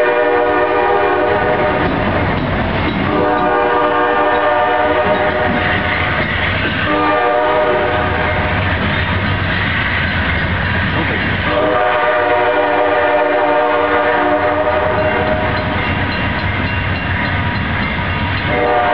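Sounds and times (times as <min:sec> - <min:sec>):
locomotive air horn blasts: 0:00.0 - 0:01.9, 0:03.0 - 0:05.9, 0:06.8 - 0:08.6, 0:11.5 - 0:15.6, 0:18.5 - 0:18.9
diesel engine and train rumble: 0:00.0 - 0:18.9.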